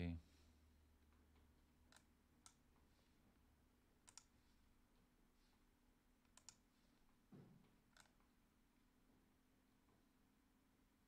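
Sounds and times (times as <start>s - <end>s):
computer mouse clicks: 1.9s - 2.6s, 4.0s - 4.4s, 6.2s - 6.7s, 7.9s - 8.3s.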